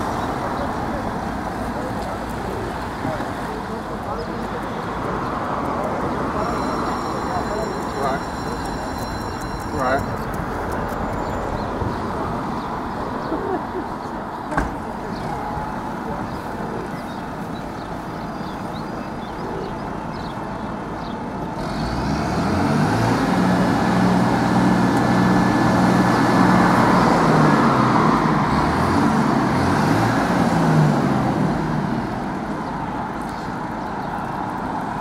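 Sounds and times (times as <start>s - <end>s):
traffic and street noise: 0.0s - 35.0s
vehicle engine revving: 21.5s - 32.4s.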